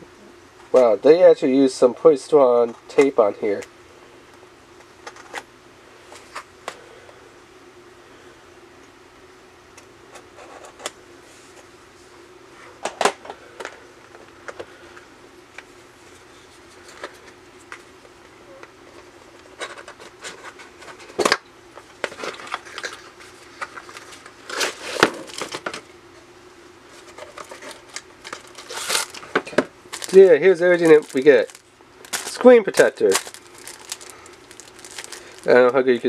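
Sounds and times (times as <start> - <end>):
knife scraping packaging: 27.0 - 29.2.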